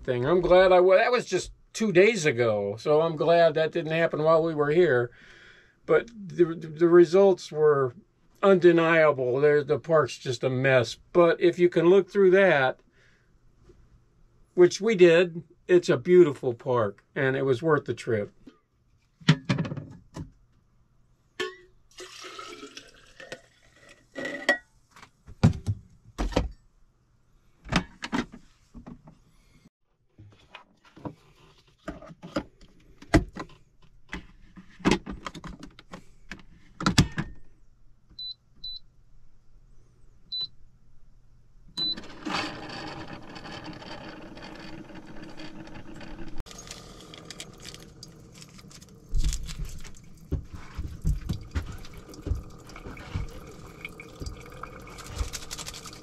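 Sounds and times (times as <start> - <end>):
water running: 21.9 - 23.4, 46.4 - 56.0.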